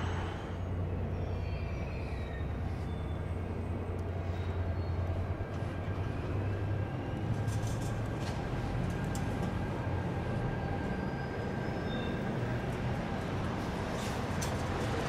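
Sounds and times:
faint high wheel squeals: 0:01.0 - 0:05.6, 0:10.4 - 0:12.8.

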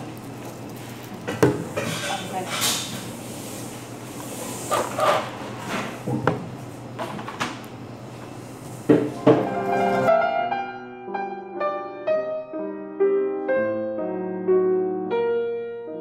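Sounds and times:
cafe room noise: 0:00.0 - 0:10.3
gentle piano music: 0:09.1 - 0:16.0.

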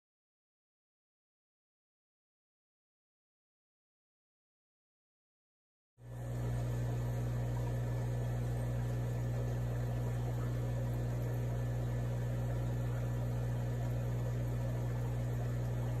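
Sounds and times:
low electrical hum: 0:06.0 - 0:16.0.

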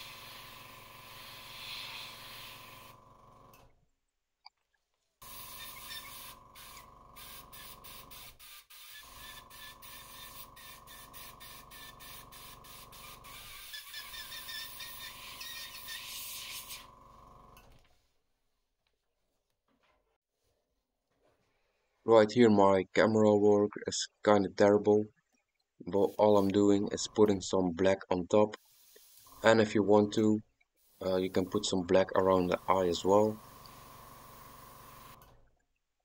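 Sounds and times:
airbrush air hiss: 0:00.0 - 0:03.0, 0:05.2 - 0:16.9, 0:26.0 - 0:26.7, 0:28.6 - 0:29.5, 0:30.8 - 0:35.1
motor hum: 0:00.0 - 0:03.7.

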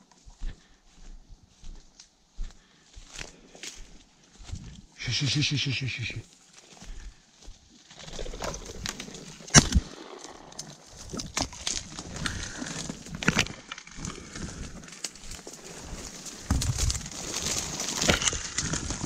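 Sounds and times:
dry reeds rustling and crackling: 0:00.0 - 0:19.0
reed stalk cracking: 0:07.8 - 0:19.0.

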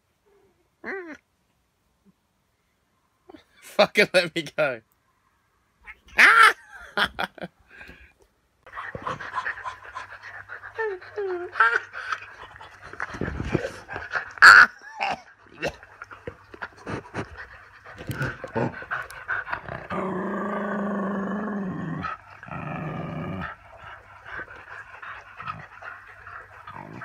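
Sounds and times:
dog growling and snuffling: 0:08.7 - 0:27.0.

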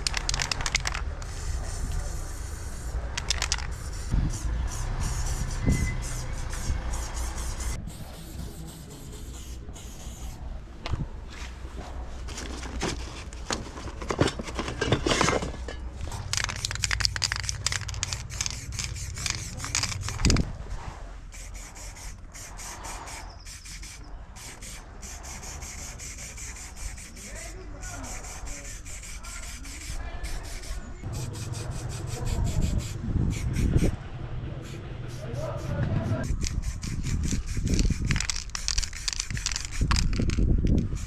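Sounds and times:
spray cans clattering: 0:00.0 - 0:01.4, 0:03.2 - 0:03.9, 0:12.3 - 0:20.4, 0:37.7 - 0:41.0
aerosol can spraying: 0:00.1 - 0:10.4, 0:16.3 - 0:20.4, 0:21.3 - 0:33.9, 0:34.6 - 0:41.0.

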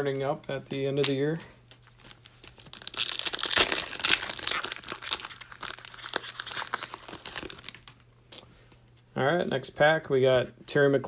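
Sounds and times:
foil wrapper crinkling and tearing: 0:00.9 - 0:08.0.

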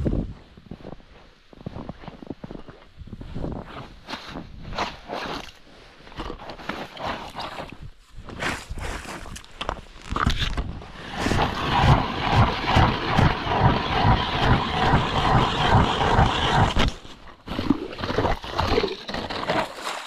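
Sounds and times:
ice auger drilling: 0:10.1 - 0:20.0.

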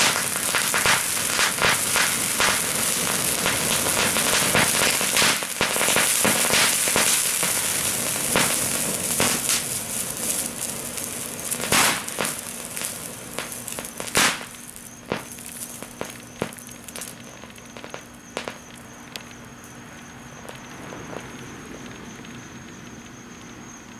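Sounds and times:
sharp pops: 0:00.0 - 0:09.8, 0:11.0 - 0:19.4
sparks hissing and crackling: 0:00.0 - 0:22.4.

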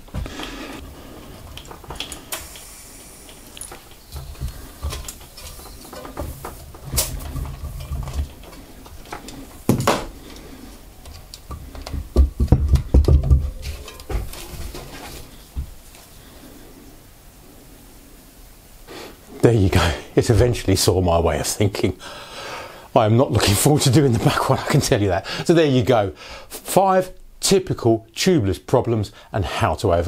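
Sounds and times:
low thumps of wheel: 0:11.5 - 0:14.8.

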